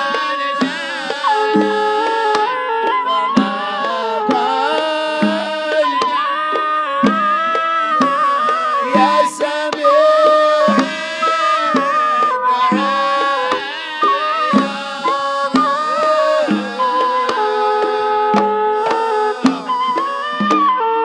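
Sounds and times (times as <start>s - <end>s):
religious song singing: 0.0s - 20.8s
hand drums beating: 0.0s - 20.9s.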